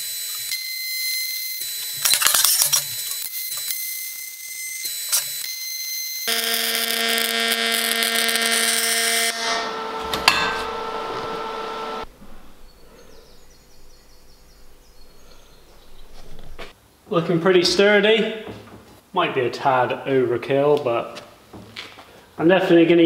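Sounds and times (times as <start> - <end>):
welding arc buzzing: 0.0 - 12.1.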